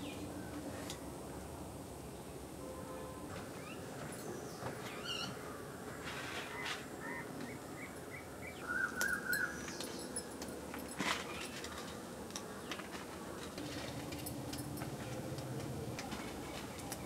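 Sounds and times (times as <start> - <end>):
bird chirping and trilling: 6.5 - 10.1.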